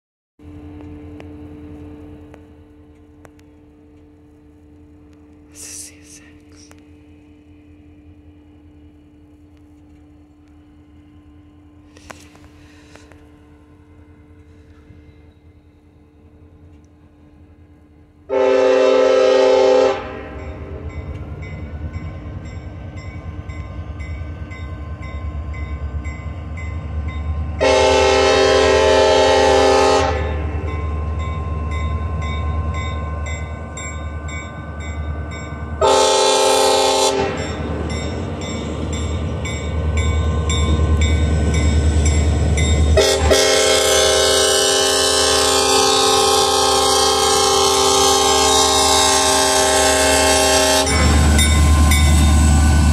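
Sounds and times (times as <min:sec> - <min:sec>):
locomotive air horn: 0:18.3 - 0:20.4, 0:27.6 - 0:30.5, 0:35.8 - 0:37.6, 0:43.0 - 0:52.9.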